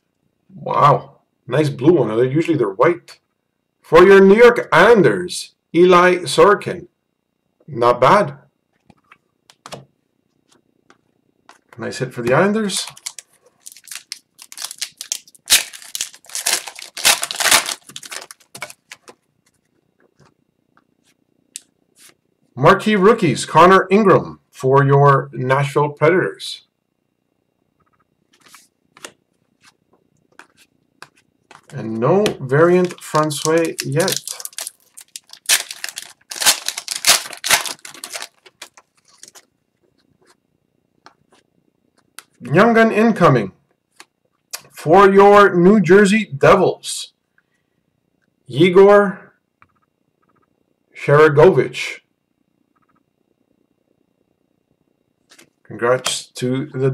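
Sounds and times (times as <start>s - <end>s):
wrapper tearing and crumpling: 12.8s - 19.2s, 32.8s - 39.5s.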